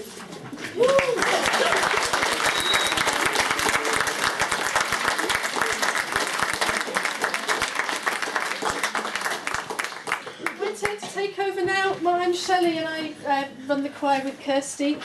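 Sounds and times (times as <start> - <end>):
audience applauding: 0.8 - 10.6.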